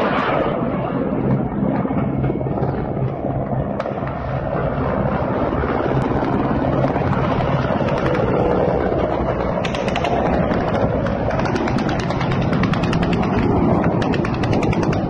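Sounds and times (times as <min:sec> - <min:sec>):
helicopter rotor drone: 0:00.0 - 0:15.0
sharp ticks: 0:09.5 - 0:15.0.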